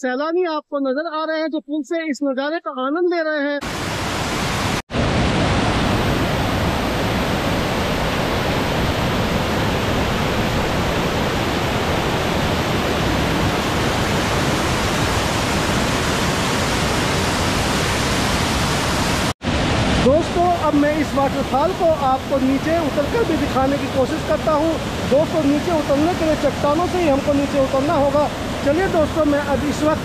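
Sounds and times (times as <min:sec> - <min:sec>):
waterfall rushing: 0:03.6 - 0:30.0.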